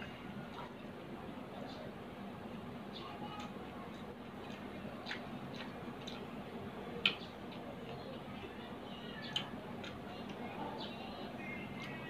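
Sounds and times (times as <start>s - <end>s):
person chewing with mouth smacks: 3.4s - 6.3s.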